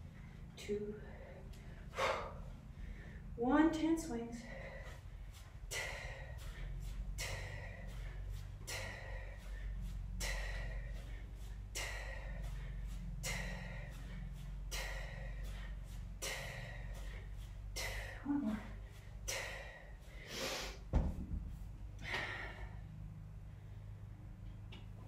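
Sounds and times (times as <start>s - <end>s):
steady low hum: 0.0s - 25.0s
woman's hissing exhalations: 20.2s - 20.8s.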